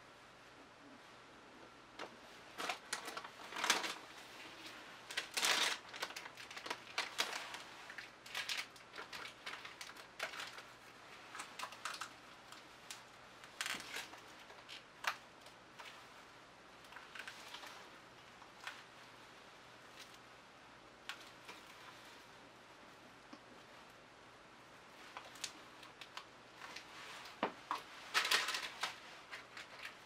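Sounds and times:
plastic crinkling: 0:02.4 - 0:19.2, 0:24.9 - 0:30.0.

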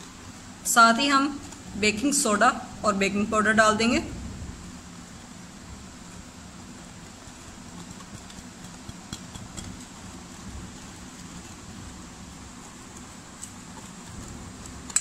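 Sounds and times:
whisk stirring batter: 0:06.4 - 0:15.0
whisk clicking against bowl: 0:07.3 - 0:11.8.

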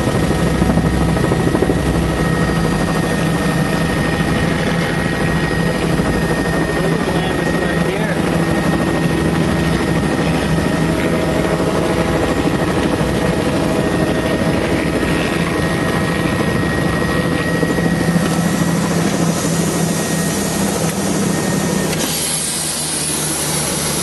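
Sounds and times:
helicopter engine and rotor drone: 0:00.0 - 0:24.0
high whine: 0:00.0 - 0:24.0.

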